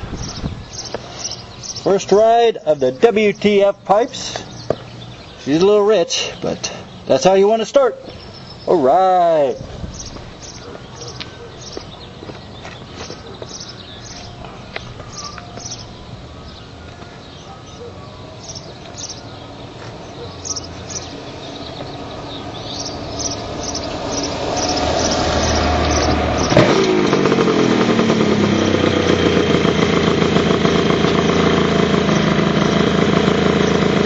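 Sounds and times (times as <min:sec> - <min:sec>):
motorcycle passing by: 0:17.9 - 0:34.0
motorcycle engine running: 0:18.4 - 0:34.0.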